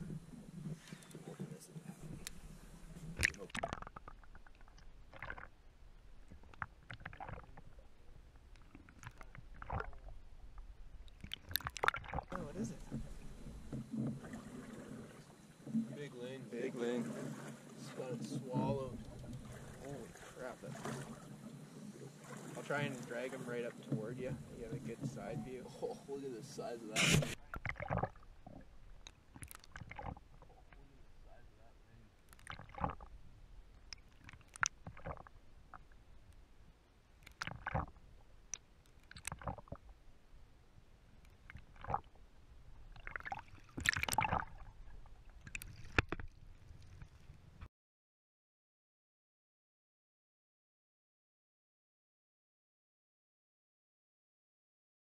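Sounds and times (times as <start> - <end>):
muffled underwater rumble: 0.0 - 33.9
water sloshing: 0.0 - 47.7.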